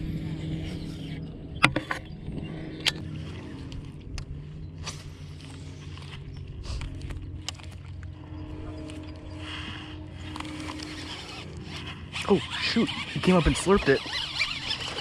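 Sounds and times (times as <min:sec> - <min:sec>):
electric trolling motor hum: 0:00.0 - 0:15.0
fishing reel cranking: 0:09.7 - 0:15.0.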